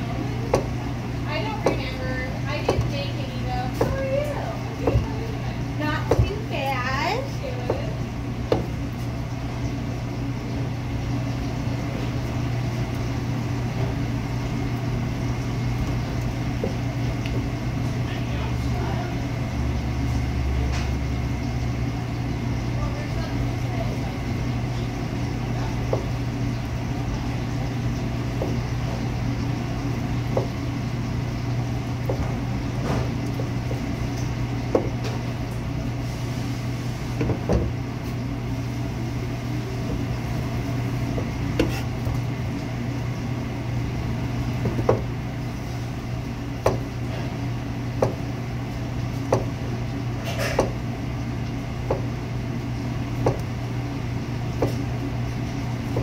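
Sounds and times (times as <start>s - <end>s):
low hum of kitchen machinery: 0.0s - 56.0s.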